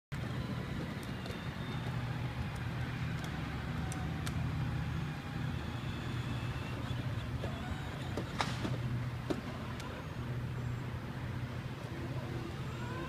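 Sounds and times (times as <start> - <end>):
toy car motor rumbling: 0.2 - 13.0
faint clicks: 1.0 - 4.4.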